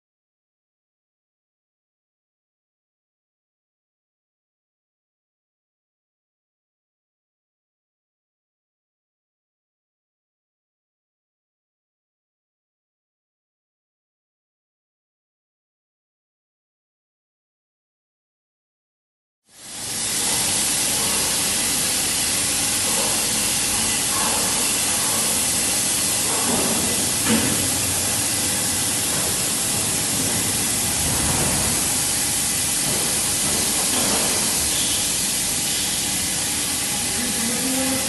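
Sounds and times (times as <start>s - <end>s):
coolant spray hissing: 19.6s - 38.0s.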